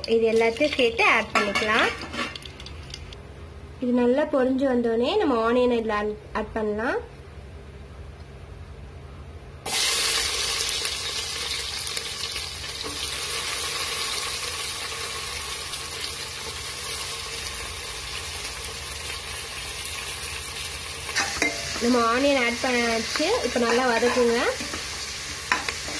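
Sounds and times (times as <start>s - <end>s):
spices frying faintly: 0.0s - 3.3s, 9.7s - 25.9s
onions sizzling in hot fat: 9.6s - 25.9s.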